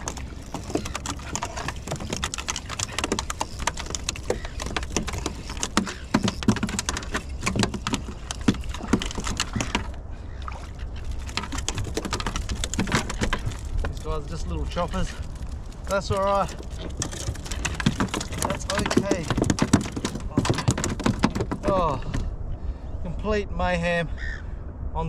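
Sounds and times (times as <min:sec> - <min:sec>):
low steady rumble: 0:08.1 - 0:16.8.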